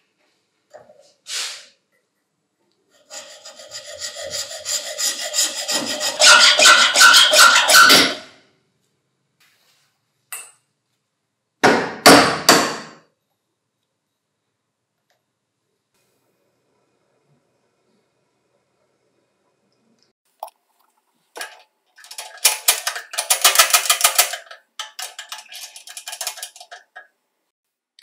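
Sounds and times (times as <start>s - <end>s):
hacksaw cutting steel: 3.0s - 8.3s
sharp metal knocks: 11.6s - 13.0s.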